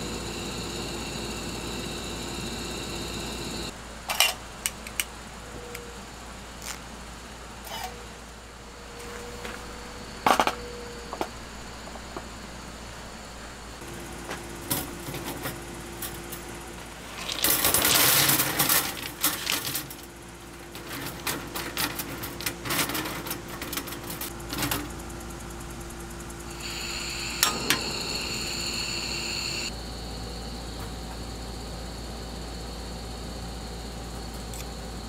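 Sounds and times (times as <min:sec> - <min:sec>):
gas burner hissing: 0:00.0 - 0:03.8, 0:25.2 - 0:30.5
stones rattling into metal basket: 0:17.0 - 0:20.1
igniter clicks: 0:27.3 - 0:28.0.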